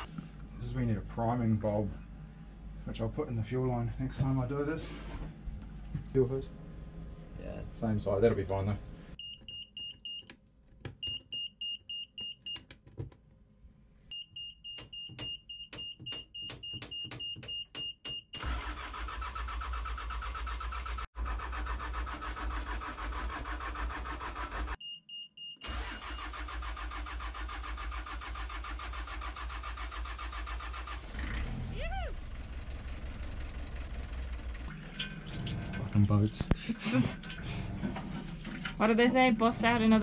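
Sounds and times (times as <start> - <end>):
diesel engine running: 25.7 - 34.7, 38.8 - 40.0.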